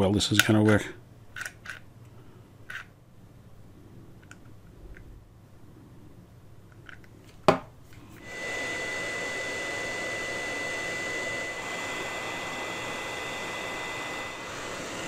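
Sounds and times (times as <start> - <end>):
high fan whine: 7.8 - 15.0
heat gun blowing air: 8.2 - 15.0.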